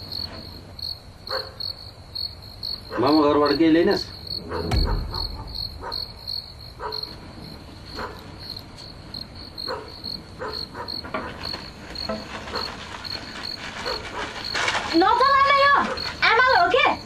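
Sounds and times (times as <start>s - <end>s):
crickets chirping: 0.0s - 17.0s
soft knocks: 4.4s - 6.4s.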